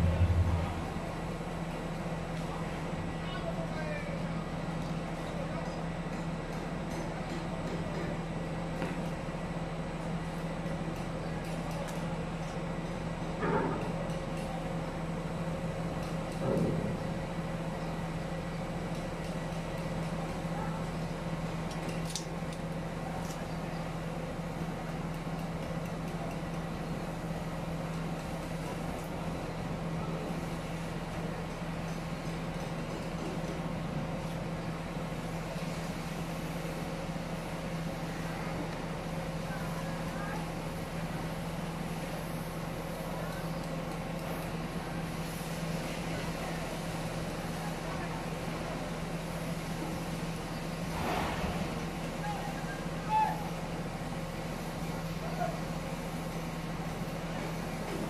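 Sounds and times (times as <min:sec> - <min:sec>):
rush of noise: 0:00.0 - 0:01.7
machinery hum: 0:00.0 - 0:05.1.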